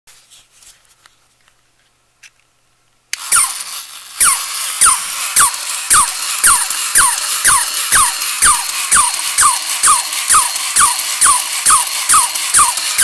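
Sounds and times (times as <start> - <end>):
toy electric motor whirring: 3.1 - 13.0
toy dog squeaky yips: 3.2 - 13.0.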